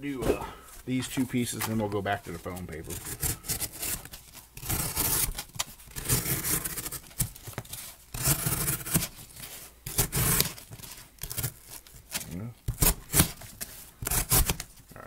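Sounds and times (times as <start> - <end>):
knife slicing cardboard: 2.9 - 9.2, 9.8 - 14.7.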